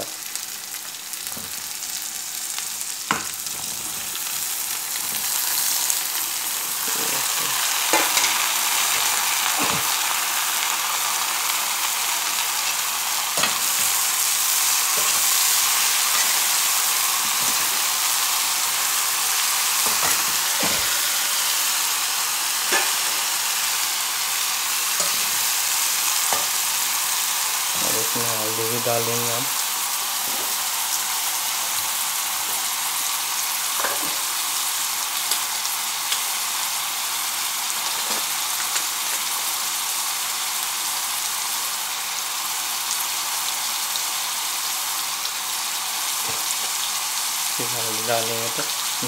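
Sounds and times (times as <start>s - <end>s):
vegetables sizzling in hot oil: 0.0s - 49.0s.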